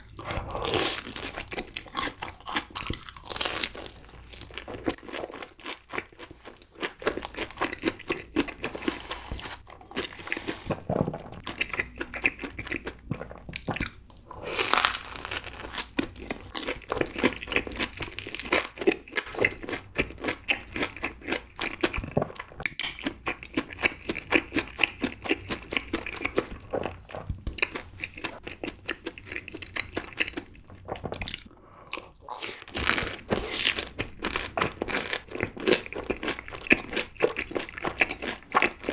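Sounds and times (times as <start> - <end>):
crisp chewing crunches: 0.0 - 22.4.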